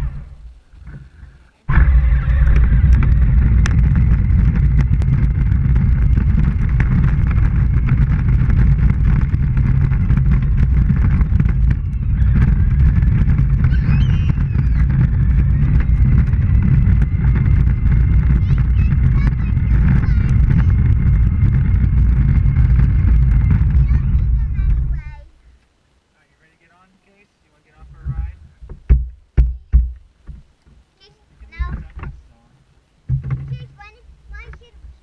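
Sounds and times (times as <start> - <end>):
toy tractor wheels and motor rumbling: 0.0 - 25.4, 33.1 - 35.0.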